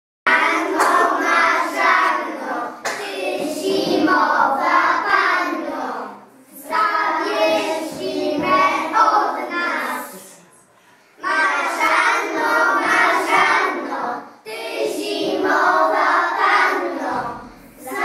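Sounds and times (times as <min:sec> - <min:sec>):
children singing in unison: 0:00.3 - 0:10.3, 0:11.1 - 0:18.0.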